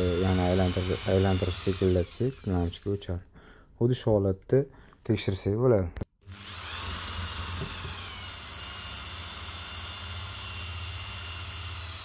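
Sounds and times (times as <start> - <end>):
electric drill motor whine: 0.0 - 3.0, 6.2 - 12.0.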